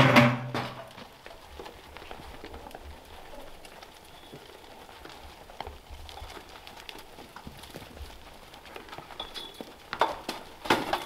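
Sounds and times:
goats knocking against trough: 0.0 - 1.1, 8.9 - 11.0.

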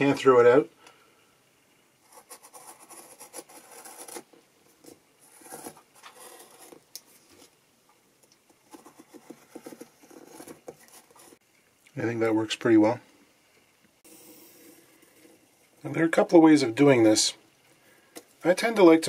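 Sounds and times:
cutter blade scratching sheet: 2.1 - 4.3.

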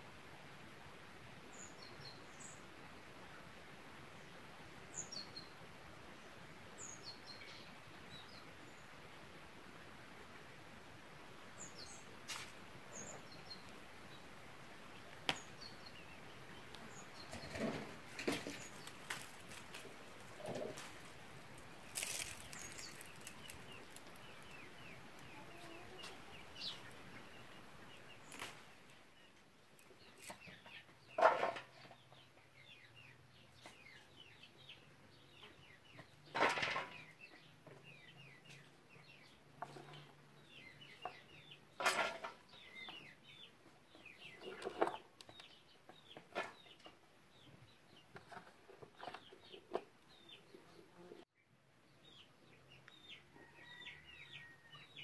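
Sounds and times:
small birds chirping: 11.5 - 55.0
chickens clucking: 16.0 - 28.6, 35.4 - 51.2.

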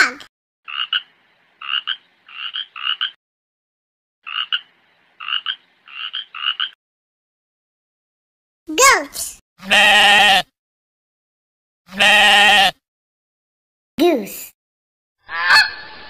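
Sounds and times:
duck quacking: 0.7 - 3.2, 4.3 - 6.8, 15.2 - 16.0
frog croaking: 0.7 - 3.2, 4.2 - 6.8, 15.2 - 15.8.

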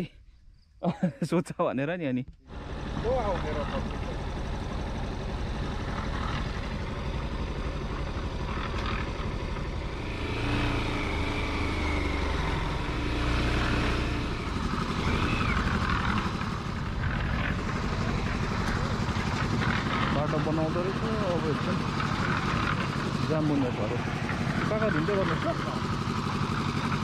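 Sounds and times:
vehicle engine running: 2.4 - 27.0
stronger engine note: 2.5 - 26.1.

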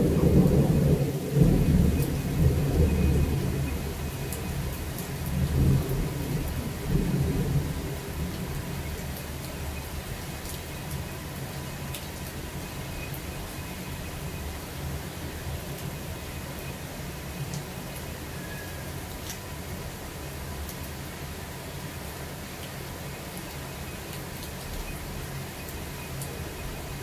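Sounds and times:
thunder rumbling: 0.0 - 10.2
steady rain: 0.0 - 27.0.

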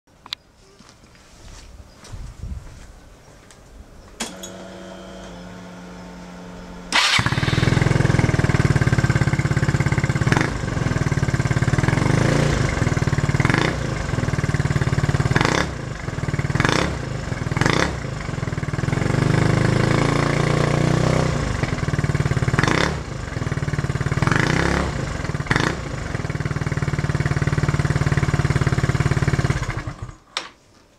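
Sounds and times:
scooter starter whirring: 4.2 - 12.0, 25.2 - 30.2
scooter engine idling with throttle blips: 4.4 - 19.7, 21.3 - 30.2.

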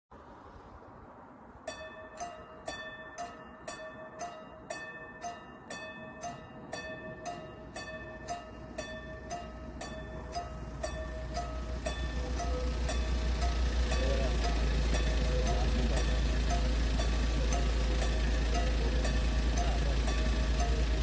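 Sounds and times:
level crossing warning bell: 1.7 - 21.0.

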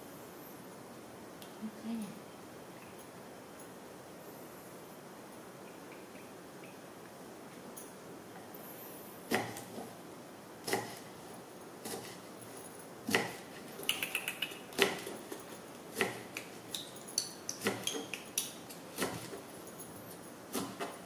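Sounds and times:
knife chopping on wooden block: 10.6 - 11.0, 13.1 - 13.4, 15.9 - 16.4, 17.6 - 18.2, 19.0 - 19.4.

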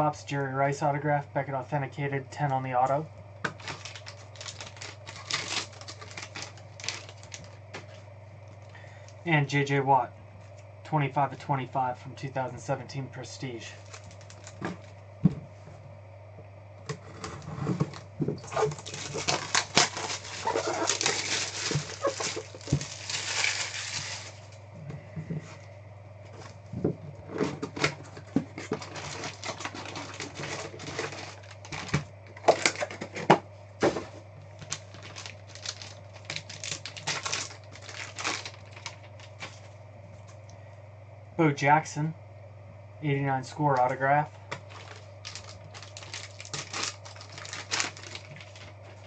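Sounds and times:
plastic wrap crinkling and tearing: 3.4 - 8.0, 13.8 - 15.0, 17.8 - 24.6, 27.8 - 33.2, 34.6 - 39.7, 44.5 - 49.0.

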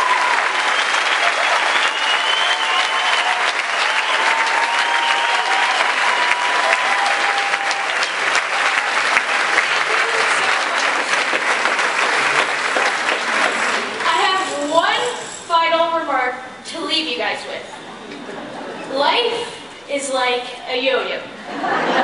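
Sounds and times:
audience applauding: 0.0 - 14.4.

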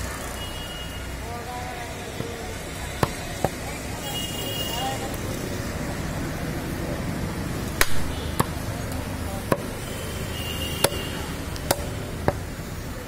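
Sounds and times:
steady background noise: 0.0 - 13.0
cleaver chopping on wooden block: 10.8 - 12.4.

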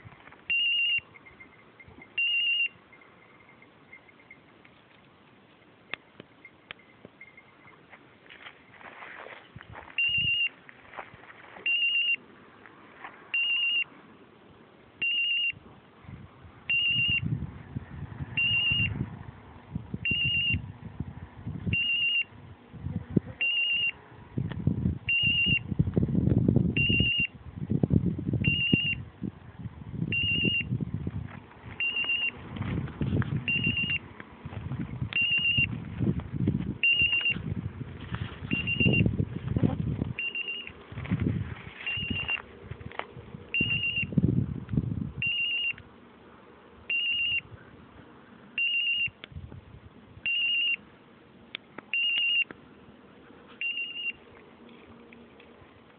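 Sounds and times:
high trilling electronic beep: 0.5 - 4.4
low rustling noise: 30.7 - 46.8.

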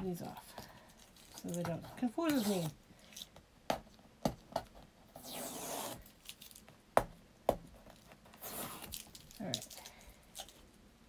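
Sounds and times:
tape being peeled off: 5.2 - 6.6, 8.3 - 9.5.

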